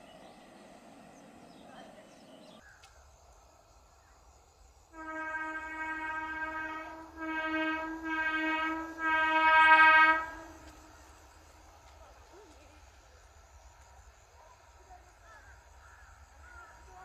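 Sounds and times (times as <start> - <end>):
train horn blasts: 4.9 - 11.1.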